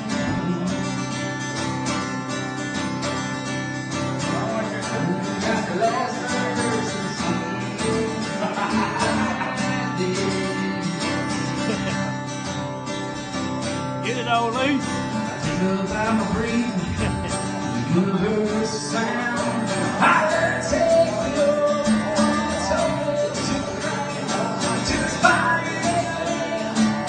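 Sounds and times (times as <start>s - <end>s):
acoustic guitar strummed and picked: 0.0s - 27.0s.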